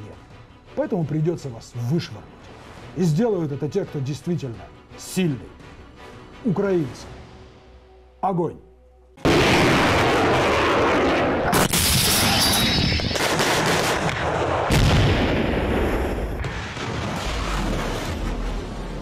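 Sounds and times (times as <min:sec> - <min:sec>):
artillery blasts: 0:09.2 - 0:18.9
booms and rumble: 0:09.2 - 0:19.0.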